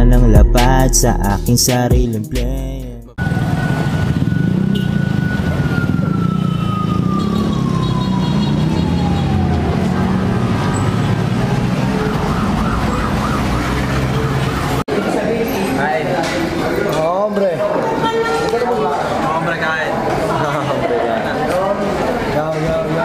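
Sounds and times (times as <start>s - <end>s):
falling siren-like tone: 3.2s - 14.8s
low traffic rumble: 3.2s - 23.0s.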